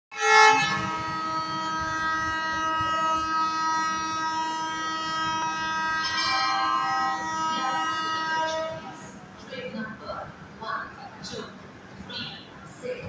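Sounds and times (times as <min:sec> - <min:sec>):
locomotive air horn blast: 0:00.1 - 0:09.0
low train rumble: 0:00.1 - 0:13.0.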